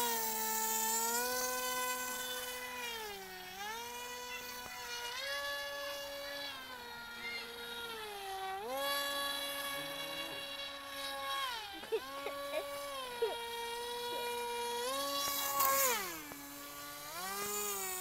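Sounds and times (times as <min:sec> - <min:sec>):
small electric motor whining: 0:00.0 - 0:18.0.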